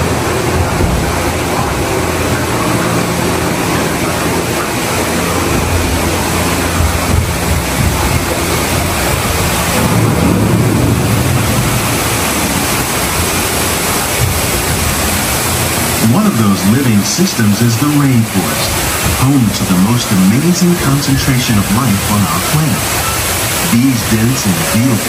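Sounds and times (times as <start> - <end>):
low rumble: 0.0 - 24.8
rushing falling water: 0.0 - 25.0.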